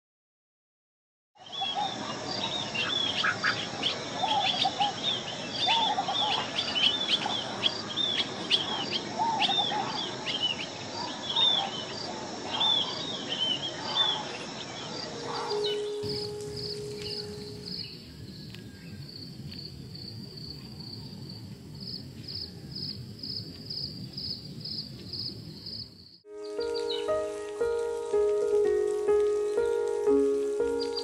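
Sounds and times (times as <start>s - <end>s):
insect drone: 1.8s - 31.0s
birds calling sharply: 12.6s - 18.0s.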